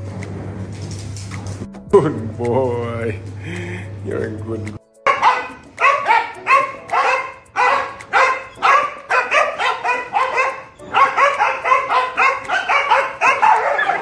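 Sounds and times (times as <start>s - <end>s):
dogs barking excitedly: 5.1s - 14.0s.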